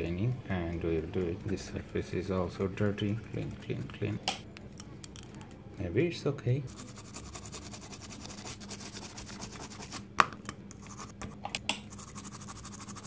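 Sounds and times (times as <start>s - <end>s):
brush scratching circuit board: 0.6s - 4.0s, 6.7s - 10.0s, 11.9s - 13.0s.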